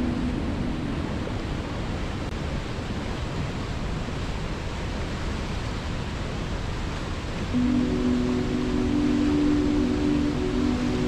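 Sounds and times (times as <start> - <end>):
river rushing over rocks: 0.0 - 11.0.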